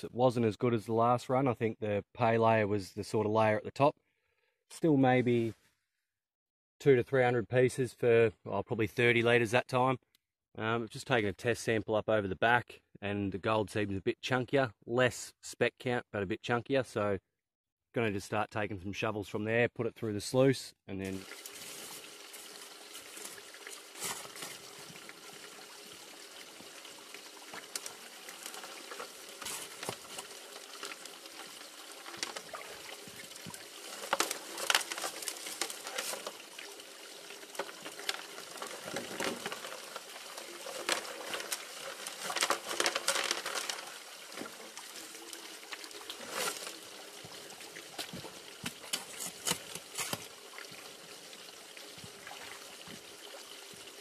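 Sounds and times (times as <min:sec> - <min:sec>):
water running through sluice: 0:21.0 - 0:54.0
shovel scraping rattling gravel: 0:28.4 - 0:30.2, 0:33.8 - 0:36.4, 0:38.0 - 0:44.0, 0:46.2 - 0:46.8.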